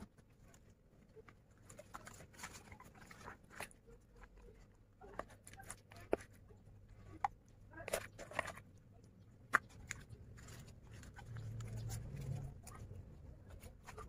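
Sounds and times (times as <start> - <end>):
metal spoon scooping in plastic bowl: 7.1 - 12.8.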